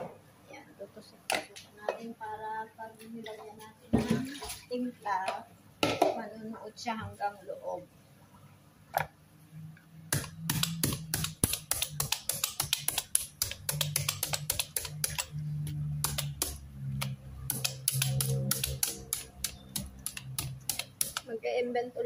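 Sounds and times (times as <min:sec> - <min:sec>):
low steady hum: 0:00.0 - 0:22.0
meat tenderizer tapping: 0:10.1 - 0:21.3.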